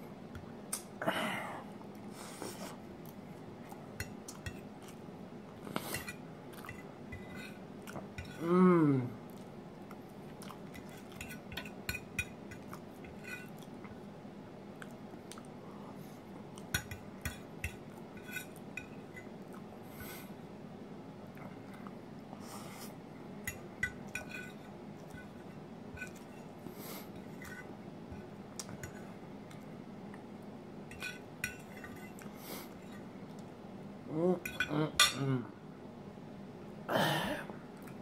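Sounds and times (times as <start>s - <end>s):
chewing: 9.3s - 11.4s
fork scraping ceramic plate: 18.2s - 18.9s, 24.1s - 24.6s.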